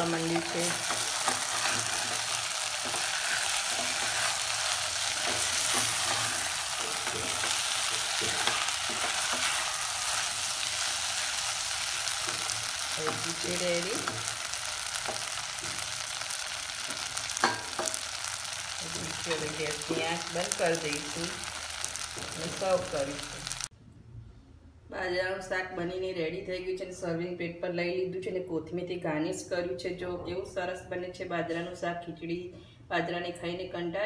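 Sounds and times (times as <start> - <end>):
food sizzling in oil: 0.0 - 23.7
spatula stirring in pot: 0.4 - 13.4.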